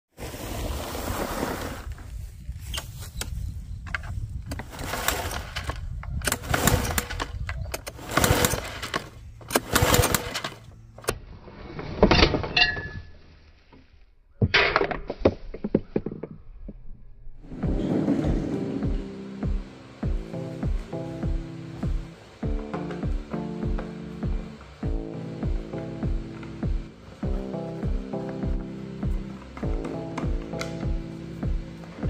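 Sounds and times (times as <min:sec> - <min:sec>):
lawn mower engine running: 0:04.5 - 0:11.2.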